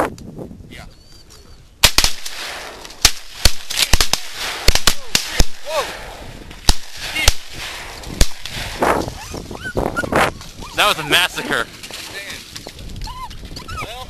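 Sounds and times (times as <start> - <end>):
shotguns firing: 1.8 - 9.0.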